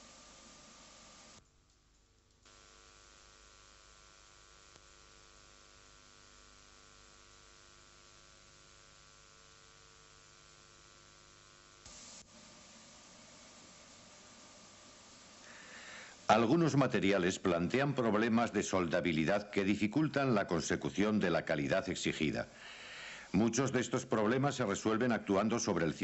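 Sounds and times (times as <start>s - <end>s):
faint electrical hum: 0.0s - 26.0s
hiss: 11.8s - 17.0s, 22.5s - 23.7s.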